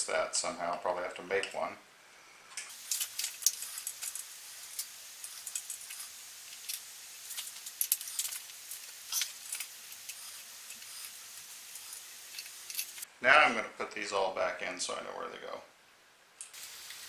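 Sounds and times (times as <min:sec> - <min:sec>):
metal screws clinking on metal: 0:02.7 - 0:13.1.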